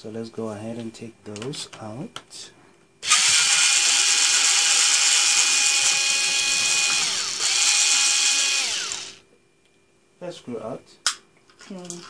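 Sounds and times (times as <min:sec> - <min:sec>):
electric screwdriver whirring: 0:03.0 - 0:09.2.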